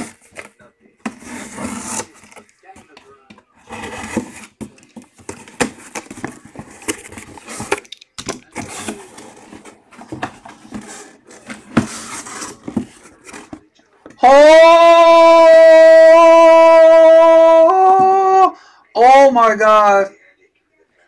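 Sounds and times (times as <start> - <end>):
cardboard box rustling and scraping: 0.0 - 7.8, 8.5 - 13.7.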